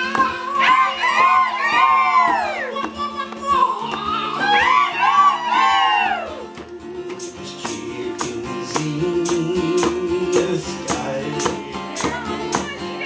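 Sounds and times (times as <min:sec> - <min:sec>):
person singing: 0:00.0 - 0:12.8
jingling hand percussion: 0:06.6 - 0:13.0.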